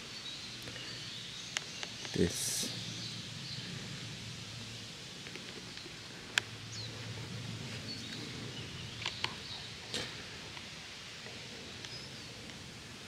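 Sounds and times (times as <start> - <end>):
faint bird chirps: 11.7 - 12.5.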